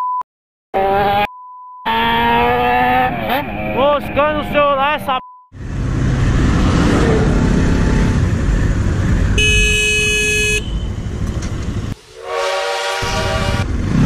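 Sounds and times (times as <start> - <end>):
motorcycle engine and road noise: 5.6 - 12.0, 13.0 - 14.0
vehicle horn blast: 9.4 - 10.9, 12.2 - 13.7.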